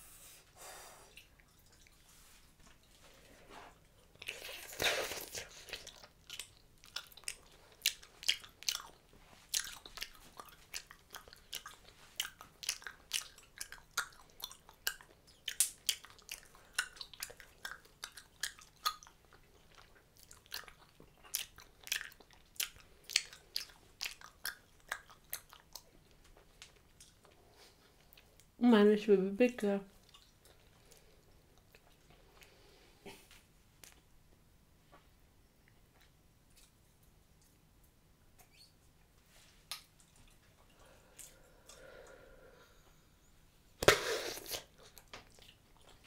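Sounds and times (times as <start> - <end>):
gum chewing smacking clicks: 4.1 - 27.4.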